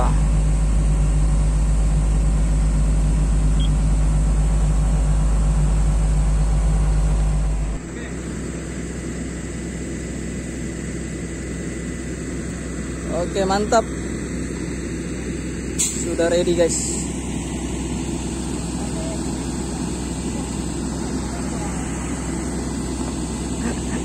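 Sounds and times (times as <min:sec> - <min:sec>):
diesel excavator engine running: 0:00.0 - 0:24.0.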